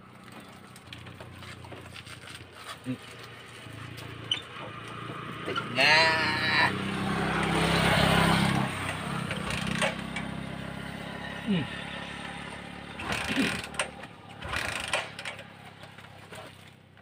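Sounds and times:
motorcycle engine running: 0.0 - 17.0
man crying out: 5.7 - 6.8.

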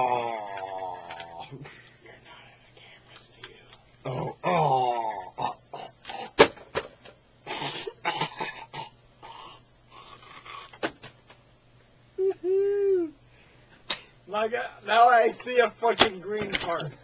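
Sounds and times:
person groaning: 0.0 - 1.6, 4.0 - 6.3.

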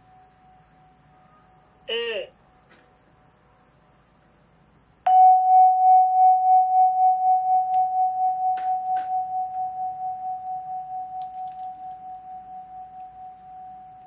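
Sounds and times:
vibraphone note ringing: 5.1 - 14.0.

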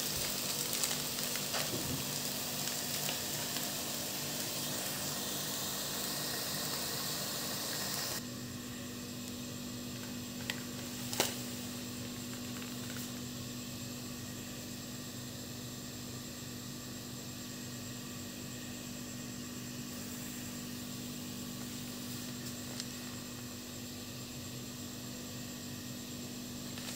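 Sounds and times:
food sizzling in a pan: 0.0 - 8.2
low hum with faint hiss: 0.0 - 26.9.

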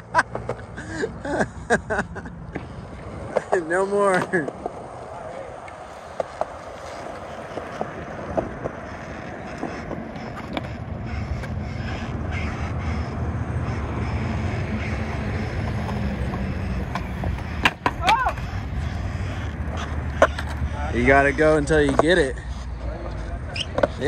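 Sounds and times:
skateboard wheels rolling on concrete: 0.0 - 24.0
skateboard clicks: 0.1 - 0.8, 2.6 - 12.0, 14.9 - 20.8, 21.6 - 24.0
skateboard striking clack: 9.5 - 11.6, 15.6 - 20.6.

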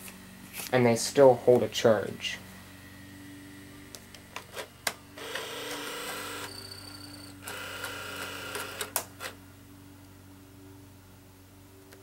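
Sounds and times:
steady low hum: 0.0 - 12.0
whirring motor: 2.5 - 9.4.

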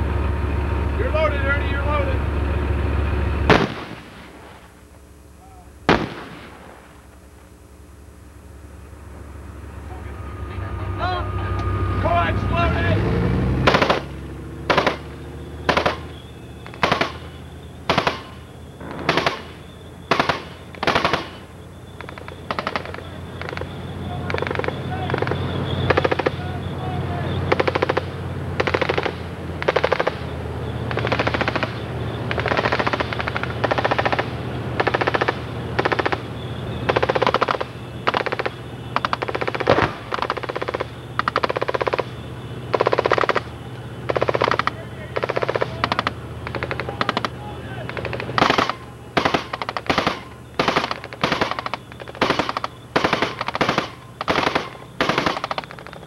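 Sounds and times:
tank engine drone: 0.0 - 56.0
machine gun firing in bursts: 3.5 - 4.4, 5.9 - 6.6, 13.6 - 14.1, 14.7 - 26.5, 27.4 - 42.1, 42.7 - 56.0.

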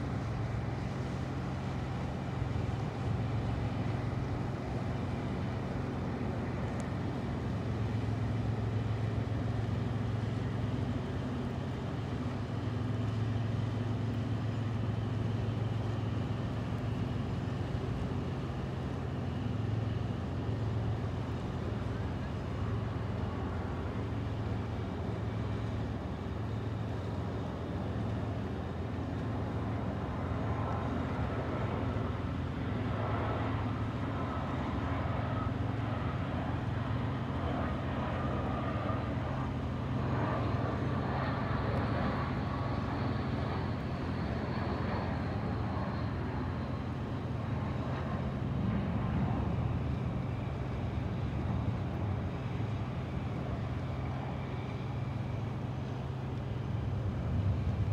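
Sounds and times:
jet airliner passing overhead: 0.0 - 57.9.

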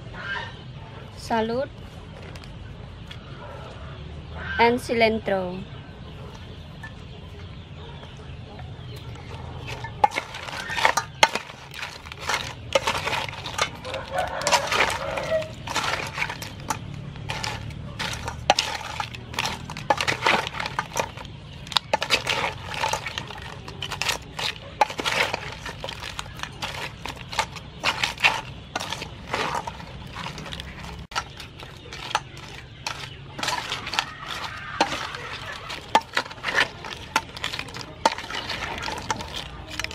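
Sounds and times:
crab shells clinking on metal bowl: 8.0 - 39.9.

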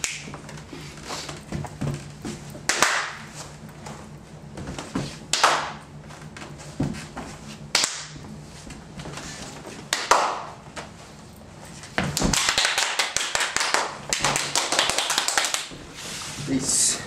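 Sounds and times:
hand slaps and claps: 0.0 - 0.4, 2.6 - 3.3, 5.3 - 5.8, 7.7 - 8.2, 9.9 - 10.9, 12.0 - 15.8.

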